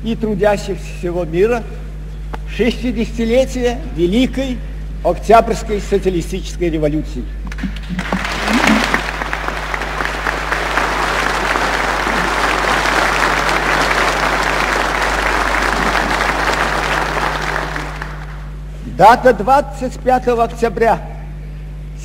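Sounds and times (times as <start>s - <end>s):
audience applause: 7.8s - 18.5s.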